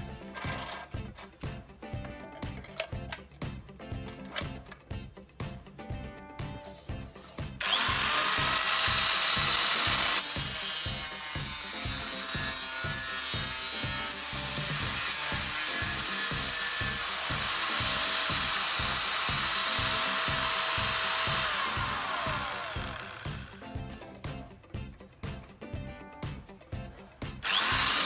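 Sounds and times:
background music with steady beat: 0.0 - 28.0
angle grinder cutting plastic: 7.2 - 23.6, 27.4 - 28.0
grinder disc spinning down: 7.6 - 23.6, 27.4 - 28.0.

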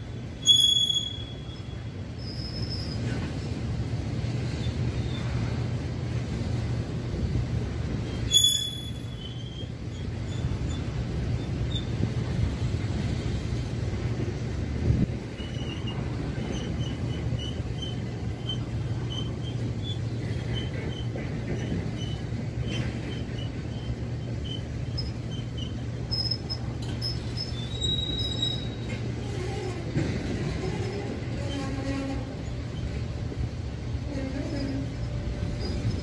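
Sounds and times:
train wheels rumbling on rail: 0.0 - 36.0
high wheel squeaks: 0.3 - 3.4, 8.0 - 12.4, 15.3 - 36.0
high squeal: 0.4 - 3.1, 8.2 - 10.8, 23.2 - 29.7.

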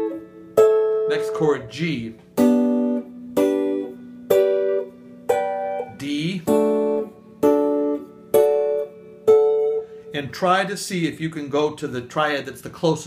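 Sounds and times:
clean electric guitar chords: 0.0 - 10.4.

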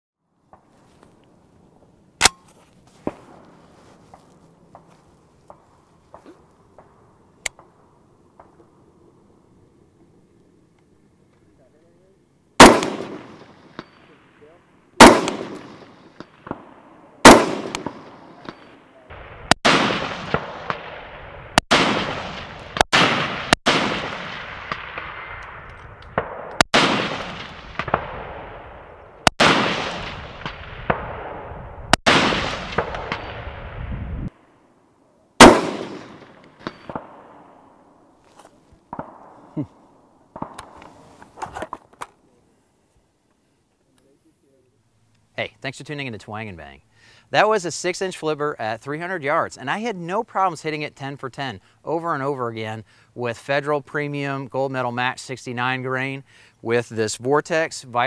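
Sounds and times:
rifle shots echoing: 12.6 - 33.8, 35.4 - 38.0, 38.8 - 40.9.

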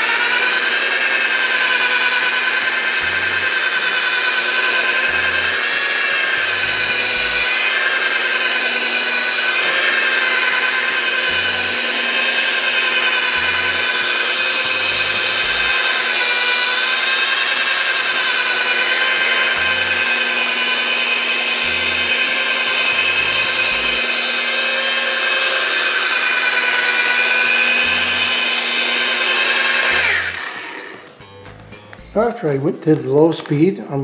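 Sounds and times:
polisher motor whine: 0.0 - 33.6.

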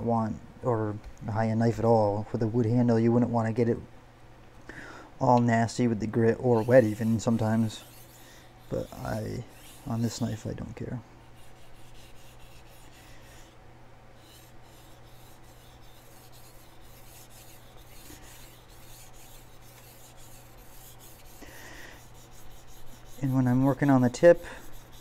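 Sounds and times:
knife scraping on whetstone: 6.4 - 10.5, 11.2 - 13.6, 14.2 - 25.0.

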